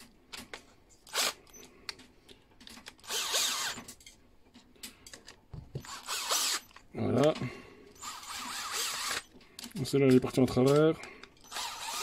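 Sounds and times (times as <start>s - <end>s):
cordless drill whining: 1.1s - 1.7s, 3.0s - 3.9s, 5.8s - 6.8s, 8.0s - 9.3s, 11.4s - 12.0s.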